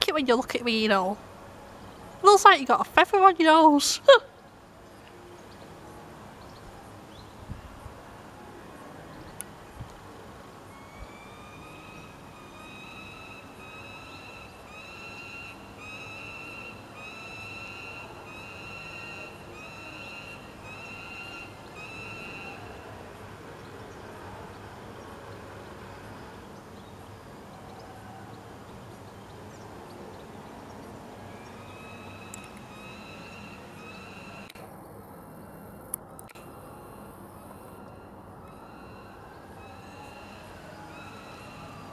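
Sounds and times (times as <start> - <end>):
low steady background rumble: 0.0 - 14.8
falcon begging cries: 10.8 - 22.7.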